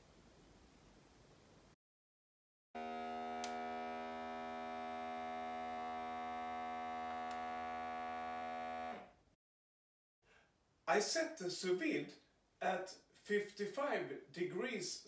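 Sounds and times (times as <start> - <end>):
vacuum sealer pump humming: 2.8 - 9.1.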